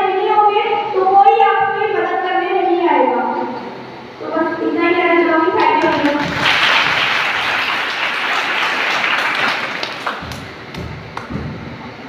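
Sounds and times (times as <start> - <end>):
woman speaking into a microphone: 0.0 - 6.4
audience applauding: 5.6 - 11.4.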